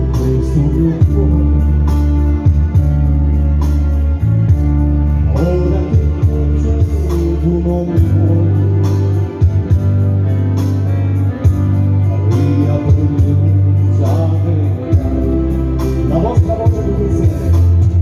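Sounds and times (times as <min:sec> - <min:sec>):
man singing into microphone: 0:00.0 - 0:02.6, 0:05.2 - 0:09.6, 0:12.0 - 0:18.0
electronic keyboard dance music: 0:00.0 - 0:18.0.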